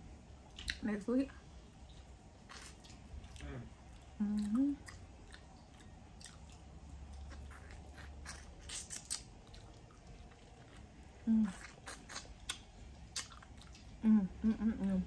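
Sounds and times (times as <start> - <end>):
wet chewing: 1.8 - 14.0
mouth smacks and clicks: 7.3 - 9.3, 11.5 - 13.8
person humming: 14.0 - 15.0.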